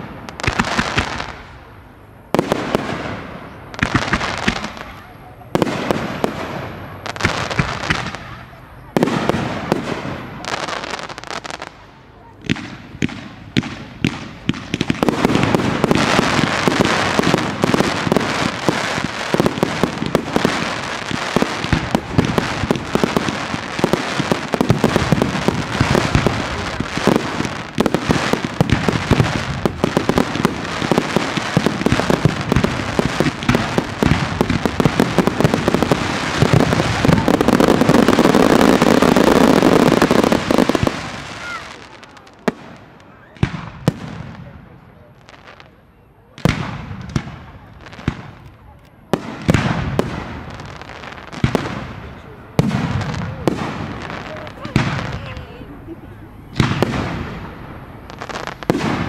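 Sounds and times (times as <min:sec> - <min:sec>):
firework bangs: 0:00.0 - 0:59.0
firework shell bursts and crackling: 0:12.4 - 0:42.8.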